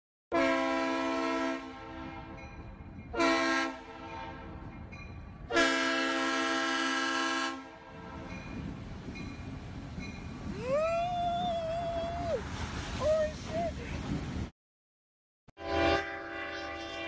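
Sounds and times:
locomotive air horn: 0:00.3 - 0:02.4, 0:03.1 - 0:04.6, 0:05.5 - 0:08.3, 0:15.6 - 0:17.0.

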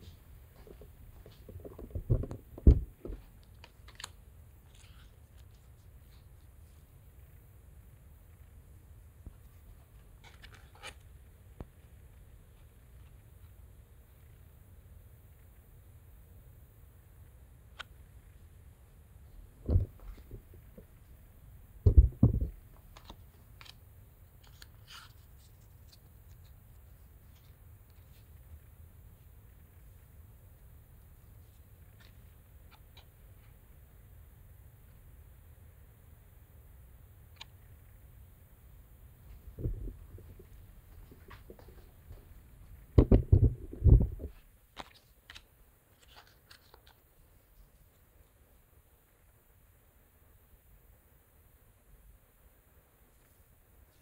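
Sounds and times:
phone handling knocks and bumps: 0:01.5 - 0:03.2, 0:21.9 - 0:22.6, 0:43.0 - 0:44.3
thump on tabletop: 0:02.0 - 0:03.2, 0:21.9 - 0:22.5, 0:43.0 - 0:44.1.

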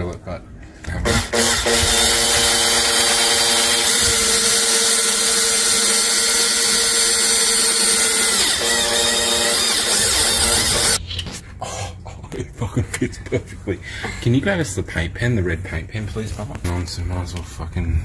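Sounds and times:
electric drill drilling sheet metal: 0:01.1 - 0:11.0.

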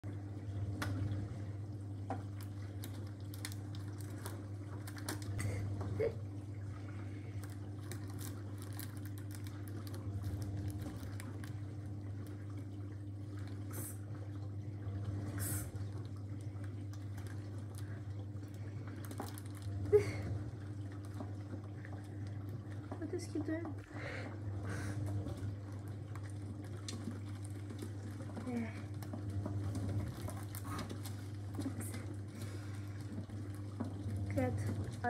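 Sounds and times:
steady low hum: 0:00.0 - 0:35.0
sweet wrappers crinkling: 0:02.4 - 0:05.6, 0:07.3 - 0:12.4, 0:17.0 - 0:20.2, 0:30.0 - 0:33.6.

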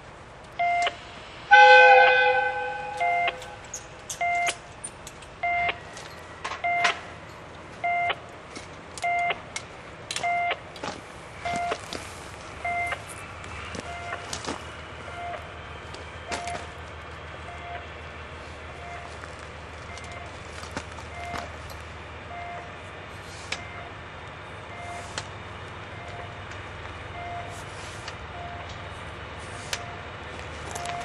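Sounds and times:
diesel locomotive rumble: 0:00.0 - 0:31.0
electronic warning beeper: 0:00.6 - 0:04.6, 0:05.4 - 0:05.8, 0:11.4 - 0:11.8, 0:12.6 - 0:13.0, 0:13.9 - 0:14.2, 0:15.1 - 0:15.5, 0:18.8 - 0:19.1, 0:27.2 - 0:27.5.

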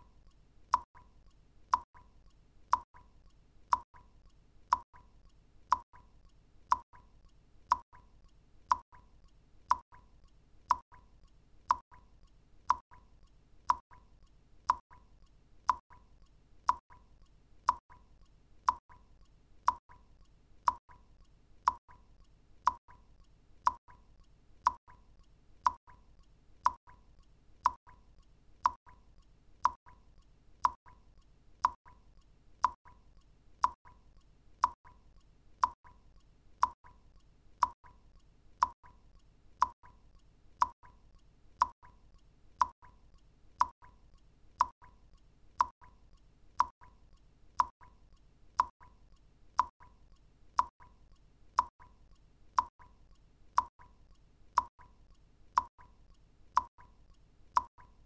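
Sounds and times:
water drops plinking into water: 0:00.7 - 0:01.1, 0:01.7 - 0:02.1, 0:02.7 - 0:03.1, 0:03.7 - 0:04.1, 0:04.7 - 0:05.1, 0:05.7 - 0:06.1, 0:06.7 - 0:07.1, 0:13.7 - 0:14.1, 0:16.7 - 0:17.0, 0:17.7 - 0:18.0, 0:27.6 - 0:28.0, 0:28.6 - 0:29.0, 0:29.6 - 0:30.0, 0:30.6 - 0:31.0, 0:31.6 - 0:32.0, 0:33.6 - 0:34.0, 0:42.6 - 0:43.0, 0:44.6 - 0:44.9, 0:45.6 - 0:45.9, 0:46.6 - 0:46.9, 0:47.6 - 0:47.9, 0:53.6 - 0:54.0, 0:54.6 - 0:55.0, 0:55.6 - 0:55.9, 0:56.6 - 0:56.9, 0:57.6 - 0:58.0.

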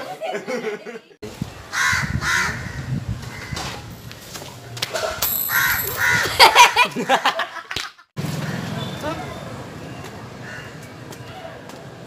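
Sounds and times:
crows cawing: 0:05.5 - 0:06.4.

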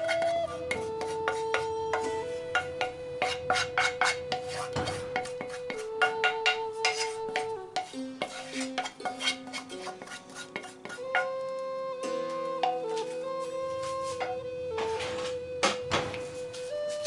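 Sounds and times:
wooden spoon scraping frying pan: 0:00.0 - 0:11.3
background music of held notes: 0:00.0 - 0:17.0.

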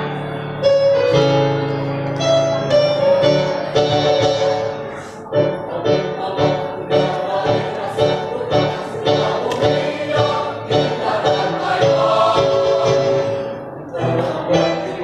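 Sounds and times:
mixed choir singing a march: 0:05.4 - 0:15.0.

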